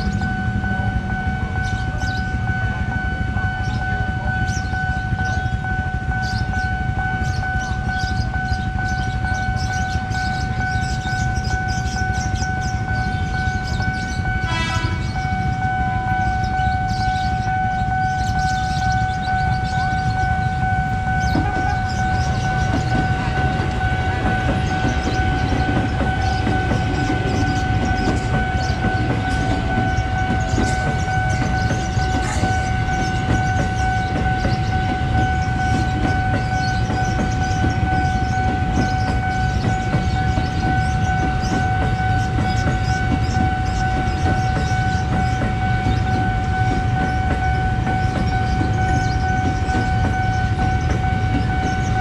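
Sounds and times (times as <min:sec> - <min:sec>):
steady high tone: 0:00.0 - 0:52.0
train rumbling: 0:00.0 - 0:52.0
wheels clacking over rail joints: 0:18.4 - 0:52.0.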